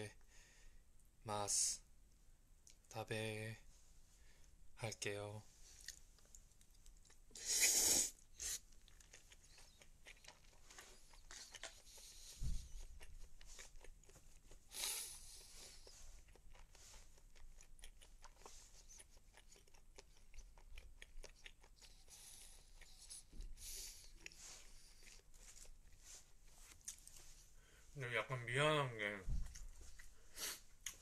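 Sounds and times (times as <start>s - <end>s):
person chewing and crunching food: 5.7s - 27.6s, 29.4s - 31.0s.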